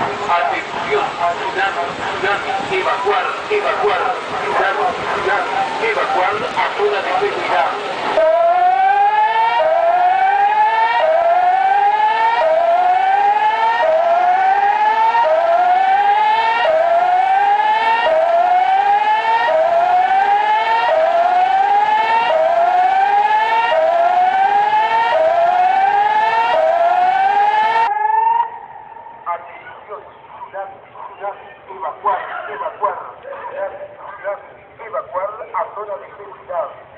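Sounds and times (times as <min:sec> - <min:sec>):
warning siren whooping: 0:00.0 - 0:29.8.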